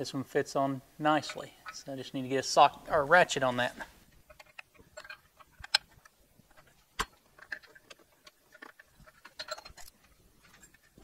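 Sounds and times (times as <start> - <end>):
ratchet and socket clinking: 4.3 - 11.0.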